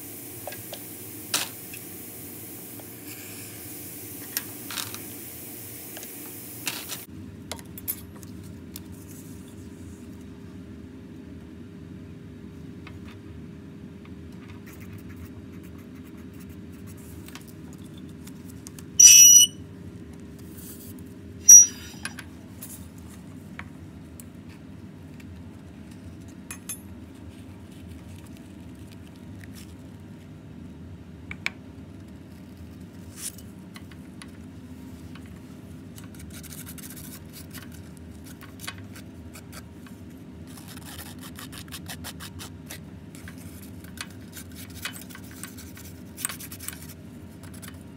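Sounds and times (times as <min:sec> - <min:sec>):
electronic balance beeps: 0:19.0 - 0:19.6, 0:21.5 - 0:21.9.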